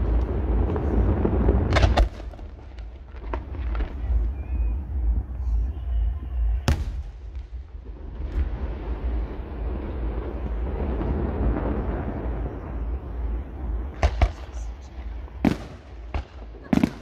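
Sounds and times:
fireworks sharp cracks: 0.0s - 4.3s, 13.9s - 17.0s
fireworks rumbling: 0.0s - 17.0s
loud firework bang: 0.5s - 3.8s, 6.6s - 9.2s.

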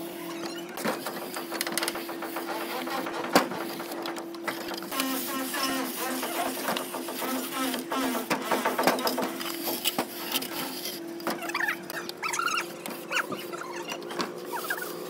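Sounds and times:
steady mechanical hum: 0.0s - 15.0s
straightedge scraping render: 0.0s - 15.0s.

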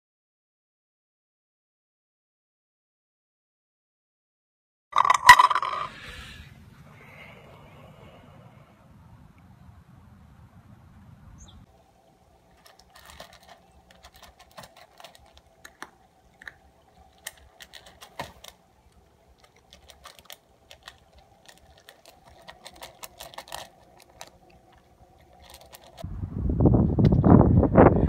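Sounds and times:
cat crunching dry food: 11.9s - 26.0s.

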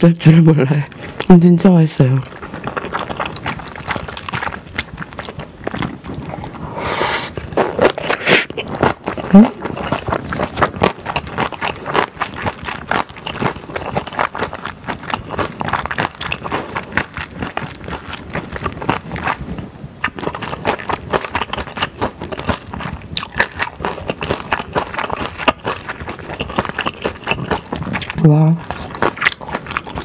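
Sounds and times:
wet chewing and mouth smacks: 0.0s - 30.0s.

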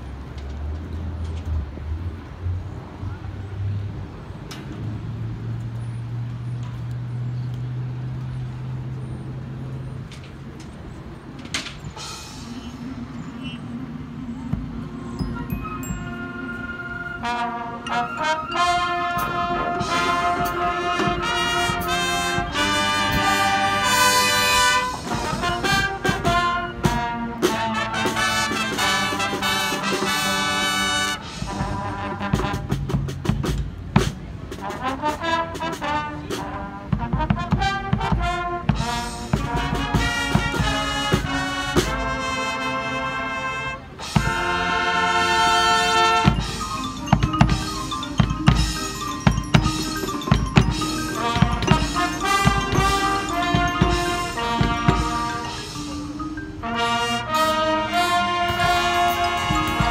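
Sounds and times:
drums: 11.3s - 13.6s, 14.4s - 16.4s, 19.1s - 43.0s, 43.8s - 59.9s
marimbas: 11.9s - 27.1s, 44.0s - 59.9s
brass chords: 12.0s - 59.9s.

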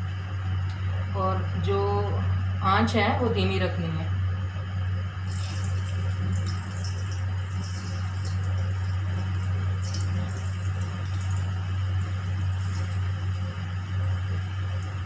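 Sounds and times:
low hum: 0.0s - 15.0s
food sizzling in hot oil: 5.2s - 15.0s.

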